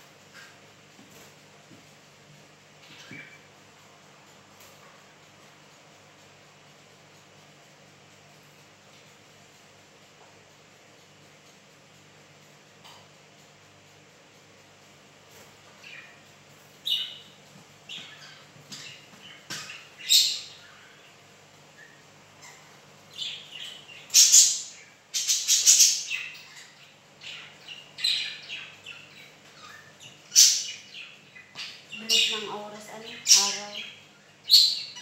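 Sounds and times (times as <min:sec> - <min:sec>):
faint steady hum: 0:00.0 - 0:35.0
pet bird chirping and squawking: 0:22.4 - 0:30.9.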